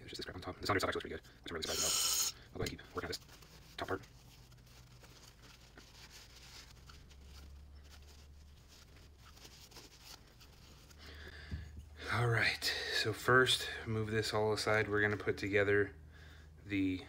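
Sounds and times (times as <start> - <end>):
rag rubbing metal: 1.6 - 2.4.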